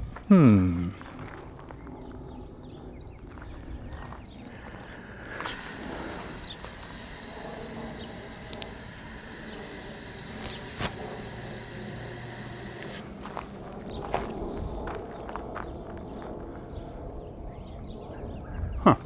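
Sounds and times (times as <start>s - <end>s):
garden hose spraying water: 5.4s - 13.1s
sharp clicks: 5.4s - 13.2s.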